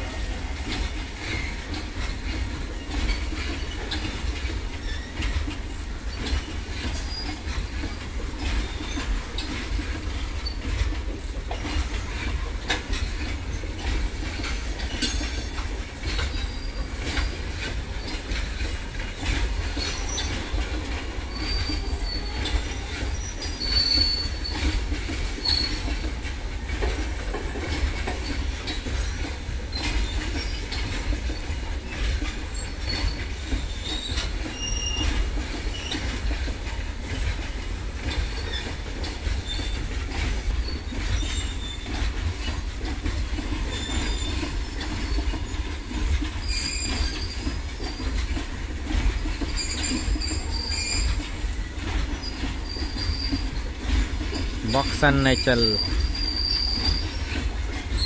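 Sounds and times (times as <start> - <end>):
train wagons rumbling: 0.0 - 58.0
wheel-on-rail clicks: 0.0 - 58.0
high-pitched wheel squeals: 32.6 - 35.1.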